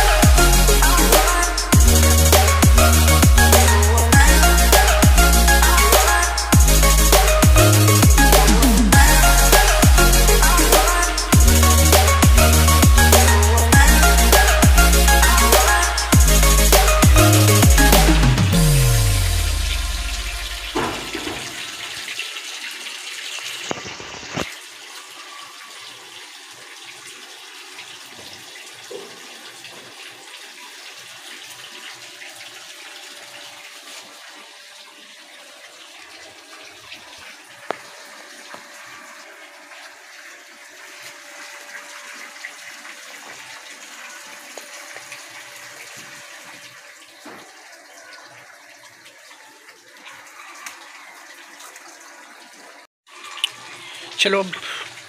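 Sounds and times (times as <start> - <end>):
music with heavy beat: 0.0 - 20.8
rushing water: 0.0 - 55.0.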